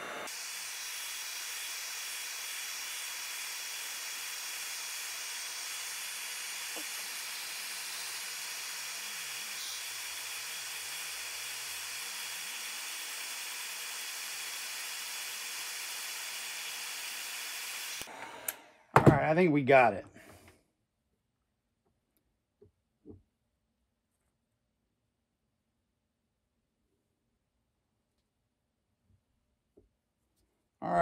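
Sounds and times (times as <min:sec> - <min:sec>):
heat gun blowing hot air: 0:00.0 - 0:18.7.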